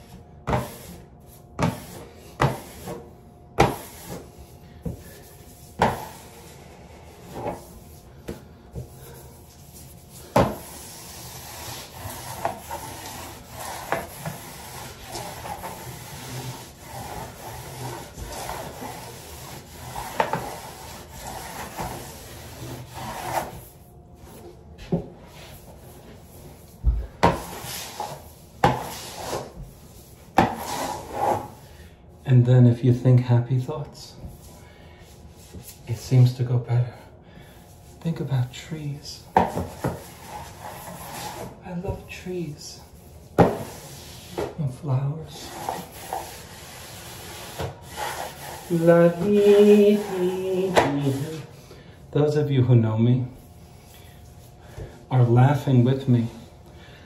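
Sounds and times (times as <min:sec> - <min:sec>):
smoother rubbing across wallpaper: 0:00.5 - 0:08.2, 0:09.0 - 0:24.4, 0:27.3 - 0:31.8, 0:37.5 - 0:41.6, 0:42.7 - 0:44.4, 0:45.3 - 0:52.1.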